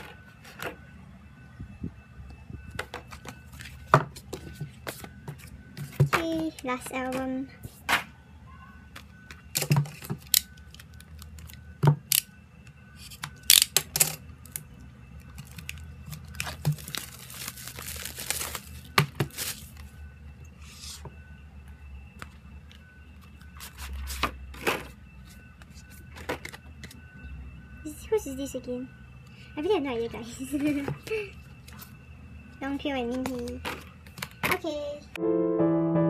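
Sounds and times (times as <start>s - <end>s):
wrap tearing and rustling: 15.6s - 19.7s.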